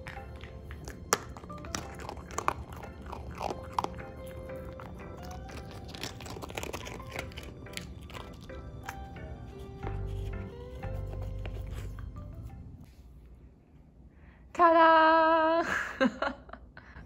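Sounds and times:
dog crunching hard biscuit: 0.0s - 9.1s
background music: 0.0s - 12.9s.

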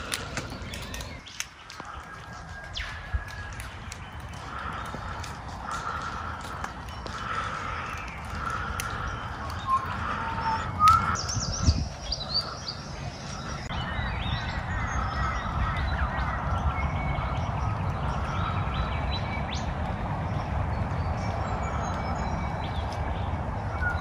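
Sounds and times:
birds chirping and whistling: 0.0s - 24.0s
steady low rumble: 0.0s - 24.0s.

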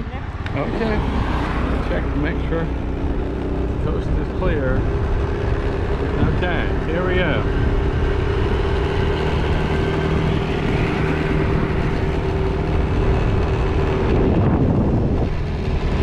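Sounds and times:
car engine and tyre rumble: 0.0s - 16.0s.

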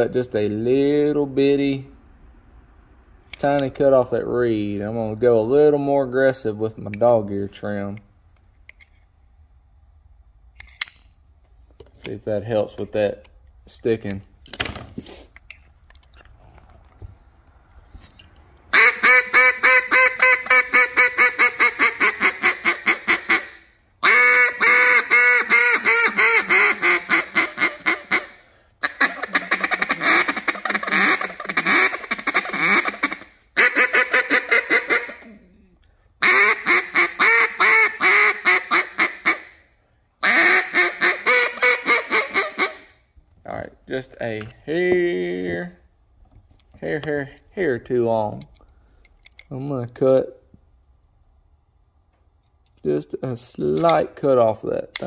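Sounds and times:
duck call quacking: 18.7s - 35.4s, 36.2s - 39.6s, 40.2s - 43.0s.

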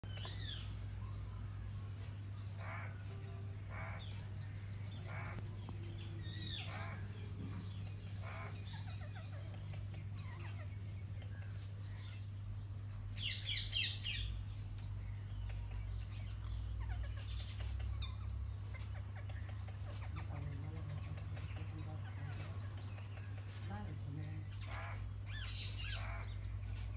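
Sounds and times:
steady low hum: 0.0s - 26.9s
parakeets screeching: 2.5s - 12.3s, 15.6s - 26.9s.

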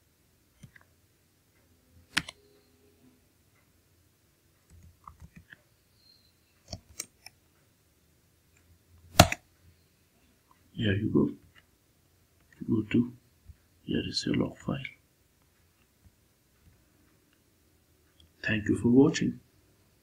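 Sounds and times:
computer keyboard keystrokes: 2.1s - 2.4s.

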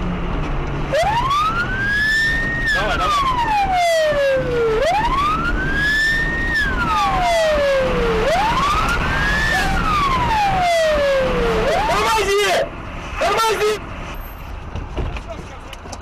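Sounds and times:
vehicle rumble: 0.0s - 16.0s
police siren wailing: 0.9s - 12.6s.

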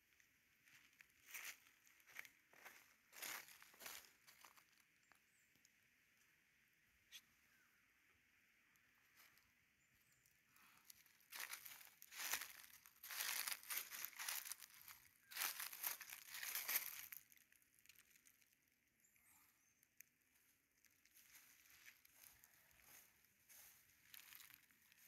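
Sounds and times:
dry leaves crunching underfoot: 0.6s - 5.1s, 10.6s - 18.5s, 20.9s - 25.0s.

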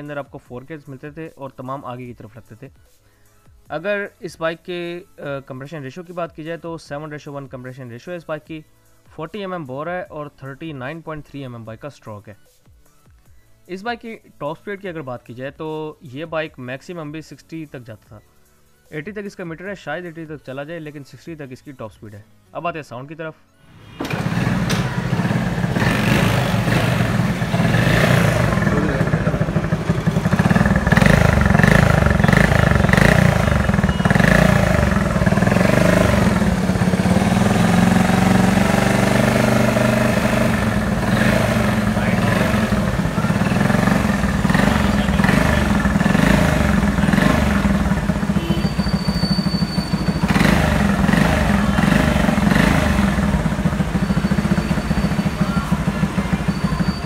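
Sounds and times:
motorcycle engine running: 23.8s - 57.0s.

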